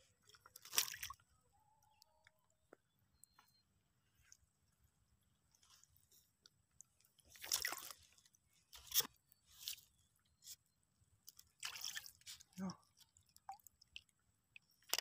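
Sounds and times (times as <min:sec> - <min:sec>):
water splashing and sloshing: 0:00.0 - 0:01.4, 0:05.5 - 0:15.0.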